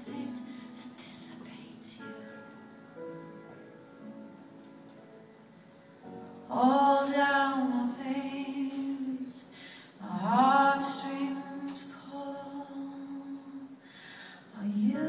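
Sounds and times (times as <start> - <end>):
woman singing: 0.0 - 2.5, 6.5 - 13.8, 14.5 - 15.0
soft piano notes: 0.0 - 13.8.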